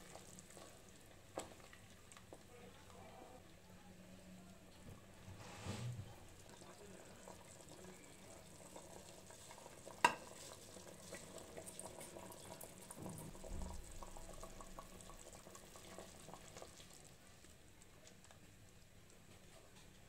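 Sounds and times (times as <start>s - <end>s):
rice pouring into liquid: 6.3s - 19.0s.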